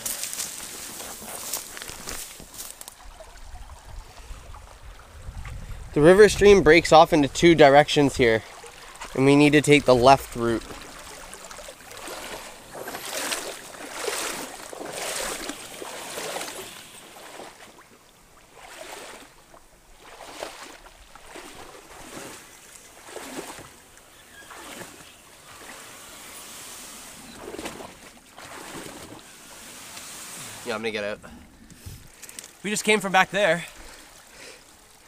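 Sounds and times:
canoe swishing through reeds: 0.0s - 3.0s, 10.0s - 30.9s.

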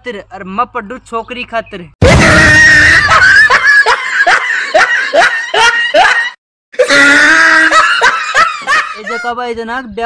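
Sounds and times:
laughter: 2.8s - 9.3s.

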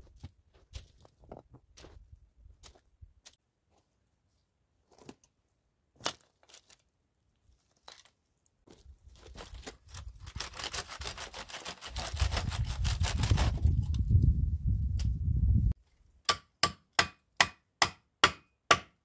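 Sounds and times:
twigs crackling and snapping: 6.0s - 12.4s.

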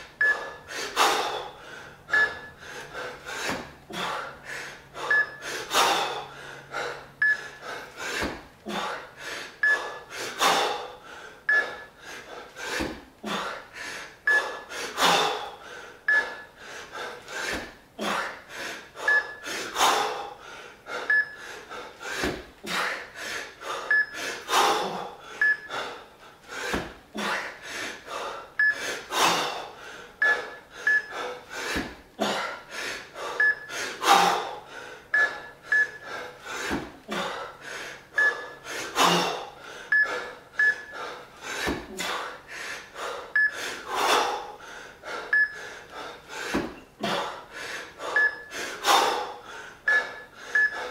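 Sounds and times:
man breathing hard: 0.0s - 50.9s.

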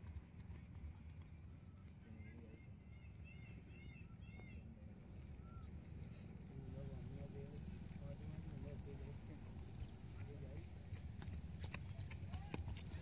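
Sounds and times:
small birds chirping: 1.7s - 13.0s
steady high hiss: 2.8s - 11.9s.

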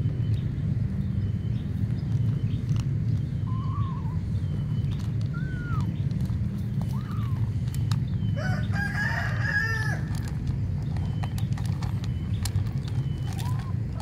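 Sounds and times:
low rumble: 0.0s - 14.0s
rooster crowing: 8.4s - 10.3s.

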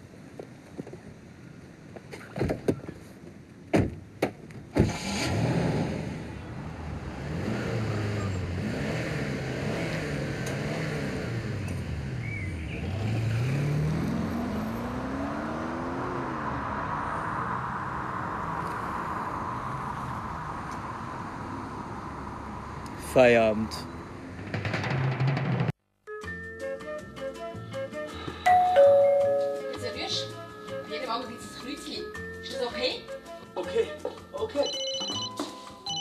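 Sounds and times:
car engine revving: 4.8s - 23.0s
sharp knocks and bangs: 24.3s - 25.8s.

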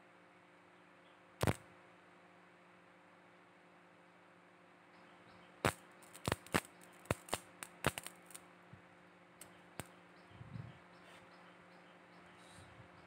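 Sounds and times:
faint steady hum: 0.0s - 13.0s
spot welder snaps: 1.4s - 1.6s, 5.6s - 8.5s.

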